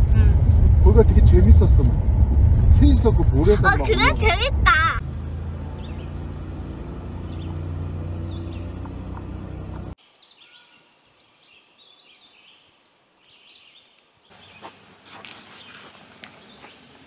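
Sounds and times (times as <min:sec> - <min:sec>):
low engine hum: 0:00.0 - 0:10.0
birds chirping and singing: 0:05.6 - 0:14.8, 0:15.4 - 0:17.0.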